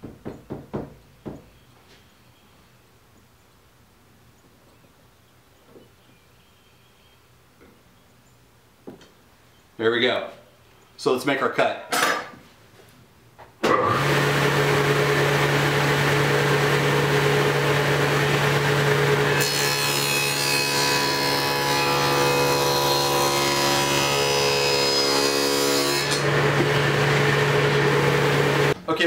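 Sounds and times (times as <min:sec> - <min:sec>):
saw blade cutting wood: 0:13.7 - 0:28.8
table saw humming: 0:13.7 - 0:28.8.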